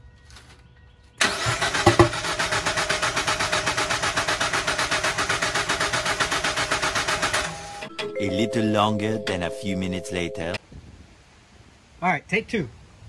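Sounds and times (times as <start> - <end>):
car engine cranking on starter: 1.2 - 7.9.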